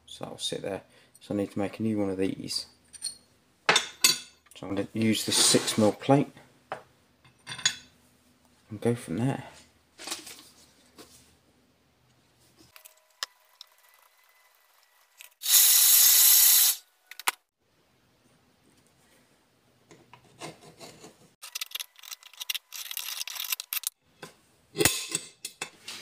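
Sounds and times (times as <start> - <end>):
loud hiss: 15.4 - 16.8
scraping and rubbing on steel: 20.1 - 24.0.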